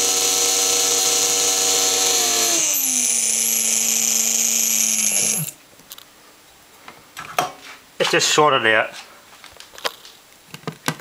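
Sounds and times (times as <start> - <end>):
small electric motor whining: 0.0 - 5.6.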